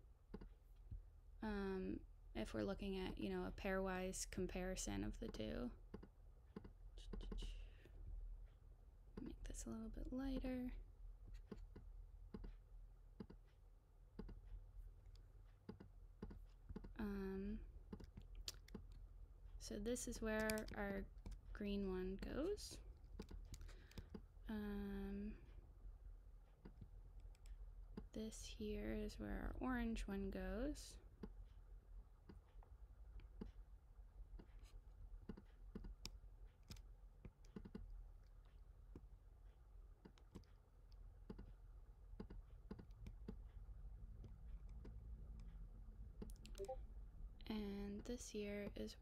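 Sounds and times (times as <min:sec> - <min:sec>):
low background hum: 0:00.0 - 0:49.0
mouse and keyboard clicks: 0:17.9 - 0:19.0, 0:20.3 - 0:21.4.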